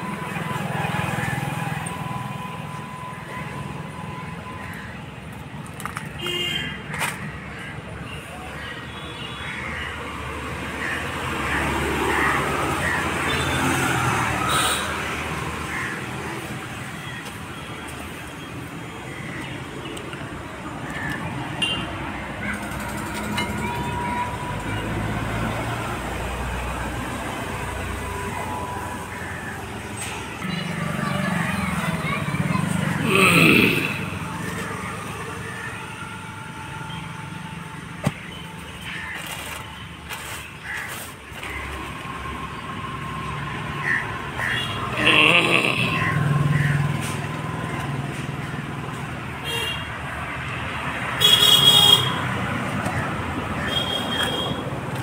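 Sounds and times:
vehicle passing: 24.4s - 35.5s.

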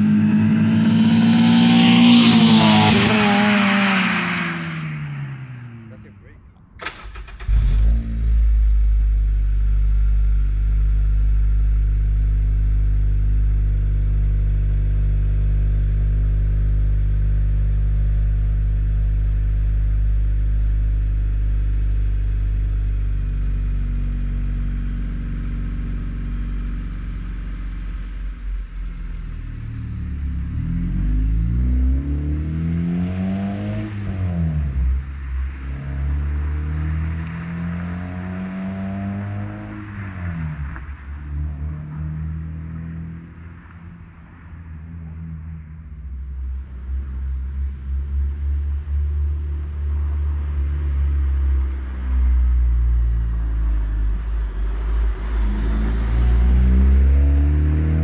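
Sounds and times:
car engine revving: 0.0s - 21.1s, 22.2s - 58.0s
car engine idling: 2.5s - 30.6s.

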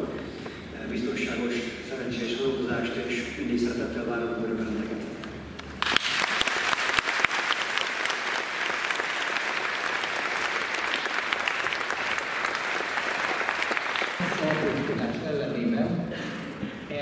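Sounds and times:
audience applauding: 5.6s - 15.2s.

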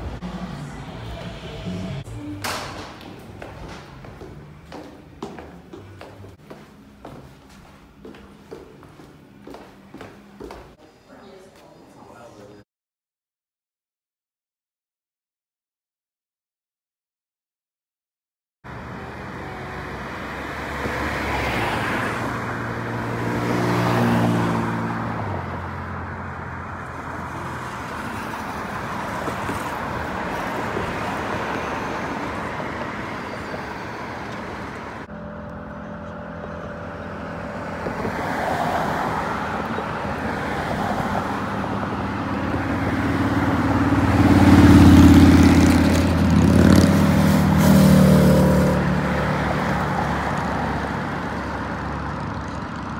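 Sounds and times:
vehicle engine accelerating: 0.0s - 6.4s, 32.9s - 52.9s
road noise: 0.0s - 12.6s, 18.6s - 52.9s.

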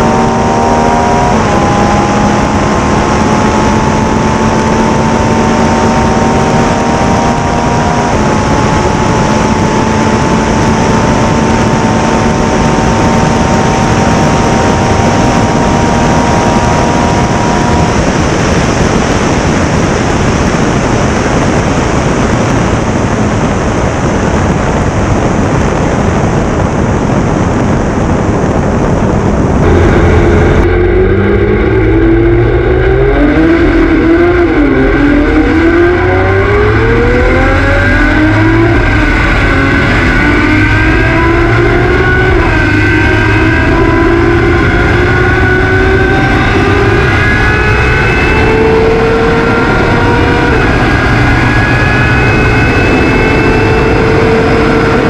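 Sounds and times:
race car engine revving: 0.0s - 25.7s, 29.0s - 55.0s
wind rushing: 0.0s - 55.0s
faint steady drone: 29.6s - 55.0s.

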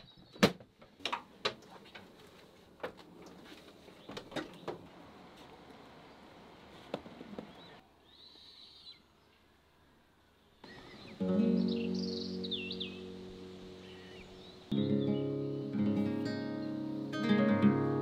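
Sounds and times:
low hiss: 4.8s - 18.0s
bird chirping: 7.4s - 9.5s, 10.3s - 15.7s.

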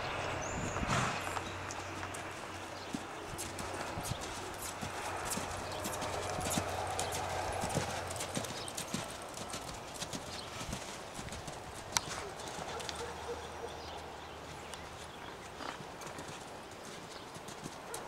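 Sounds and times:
hoofbeats on sand: 0.4s - 13.1s.

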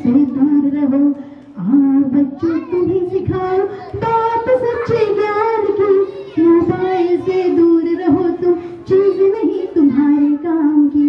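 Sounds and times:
high voices singing in unison: 0.0s - 11.0s.

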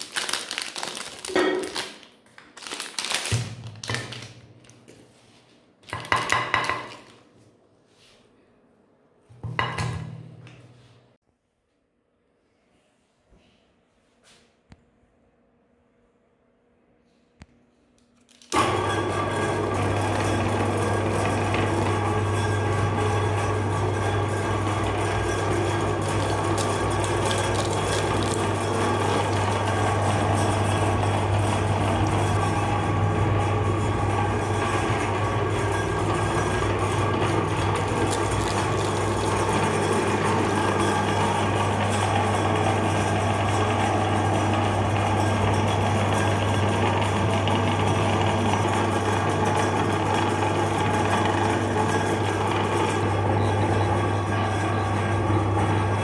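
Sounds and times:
electric meat grinder running: 18.5s - 56.0s.

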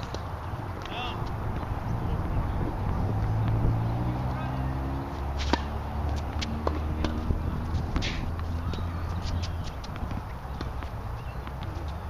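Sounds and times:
tennis racket hitting ball: 5.4s - 11.7s.

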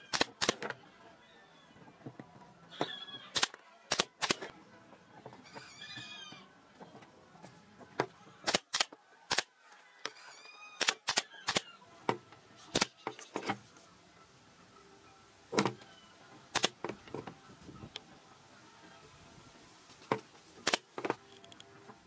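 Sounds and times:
nail gun firing: 0.1s - 0.7s, 3.4s - 4.5s, 8.4s - 9.5s, 10.8s - 11.6s, 12.7s - 13.0s, 16.5s - 16.8s, 20.6s - 21.0s.

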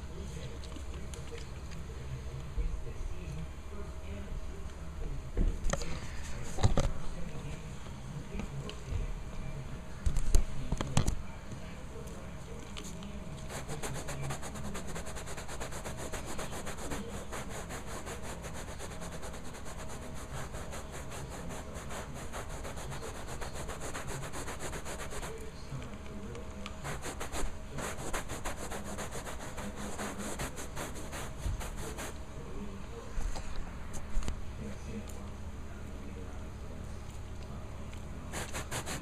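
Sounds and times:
brush scrubbing carpet: 13.4s - 25.4s, 26.8s - 32.2s, 38.3s - 39.0s.

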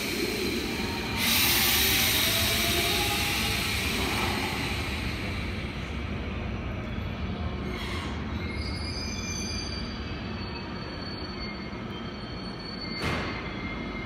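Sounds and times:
train running rumble: 0.0s - 8.8s
faint wheel squeal: 7.6s - 14.0s.

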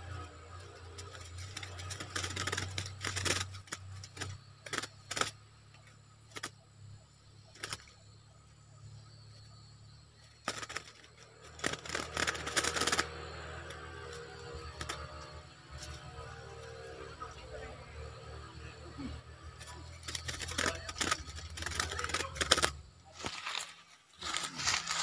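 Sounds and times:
birds wings flapping: 0.1s - 6.6s, 7.5s - 8.0s, 10.2s - 17.6s, 19.4s - 25.0s
cage wire rattling: 0.5s - 5.4s, 10.2s - 16.7s, 19.5s - 22.9s.

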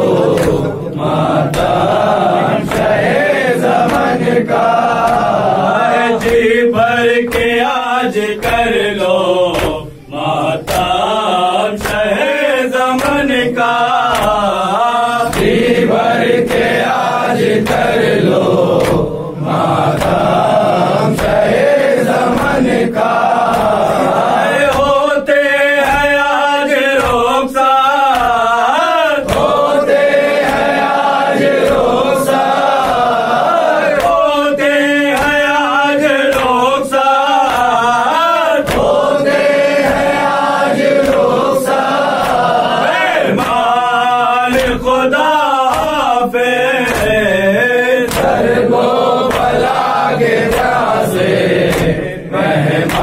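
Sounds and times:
men chanting in chorus: 0.0s - 53.0s
chest slaps: 0.1s - 3.1s, 6.2s - 6.6s, 9.5s - 10.0s, 10.7s - 11.0s, 15.3s - 15.7s, 18.6s - 19.2s, 19.9s - 20.4s, 38.6s - 39.0s, 41.0s - 41.3s, 48.1s - 48.6s, 50.4s - 50.9s, 51.6s - 52.2s.

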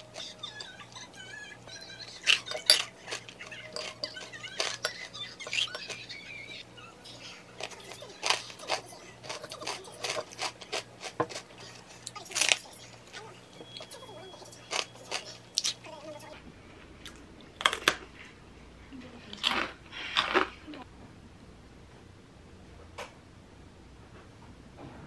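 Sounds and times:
bread crunching: 7.6s - 13.1s.

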